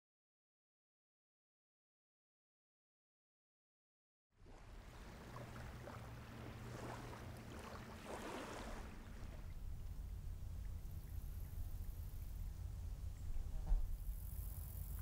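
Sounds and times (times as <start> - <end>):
wind rumble on microphone: 4.4 - 15.0
moving water hiss: 4.5 - 15.0.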